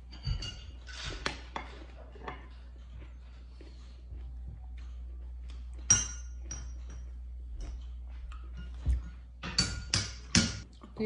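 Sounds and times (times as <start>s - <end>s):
utensils clinking on ceramic dish: 0.0s - 2.6s, 5.8s - 7.2s, 8.4s - 10.6s
low steady hum: 0.0s - 11.0s.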